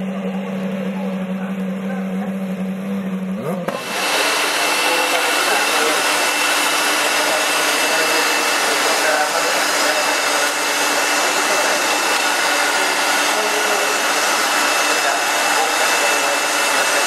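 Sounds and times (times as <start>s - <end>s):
steady hum: 0.0s - 17.0s
electric air blower whining: 3.7s - 17.0s.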